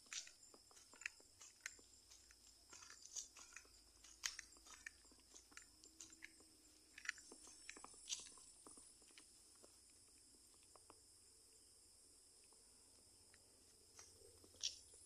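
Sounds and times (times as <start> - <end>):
footsteps on grass and dry leaves: 0.0 - 8.6.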